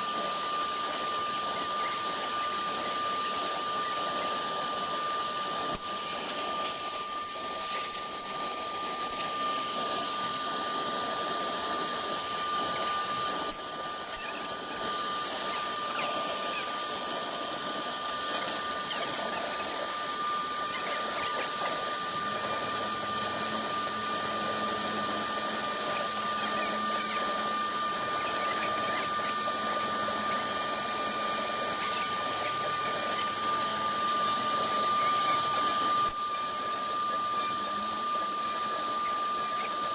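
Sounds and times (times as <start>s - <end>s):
router spindle whine: 0.0s - 39.9s.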